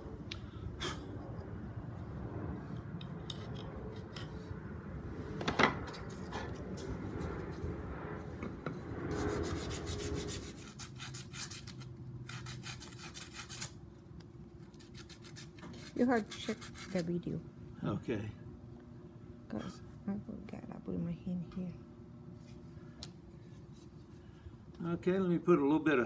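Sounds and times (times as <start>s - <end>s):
file and sandpaper rubbing wood: 9.1s - 13.8s, 14.8s - 17.1s.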